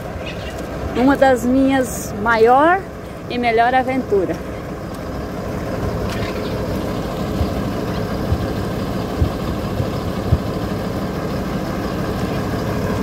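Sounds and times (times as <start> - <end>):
vehicle engine running at low revs: 0.0 - 13.0
dull low thumps: 6.6 - 10.9.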